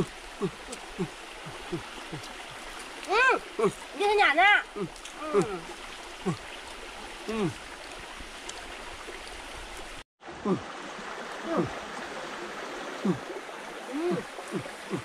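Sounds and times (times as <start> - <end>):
forest stream rushing: 0.0 - 15.0
short wordless voice sounds: 3.1 - 5.7, 7.3 - 7.6.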